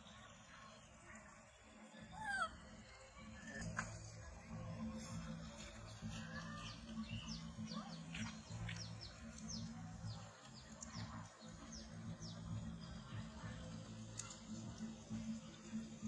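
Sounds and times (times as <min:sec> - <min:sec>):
small birds chirping: 0:05.0 - 0:15.8.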